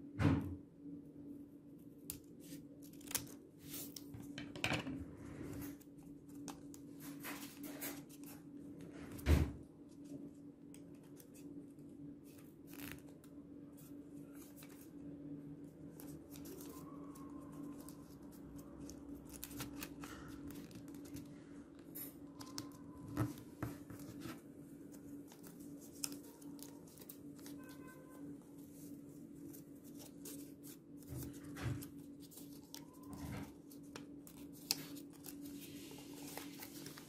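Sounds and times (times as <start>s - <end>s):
thump: 0.2s - 0.6s
scissors snipping paper: 15.9s - 21.3s
paper rustling: 15.9s - 21.4s, 22.2s - 37.0s.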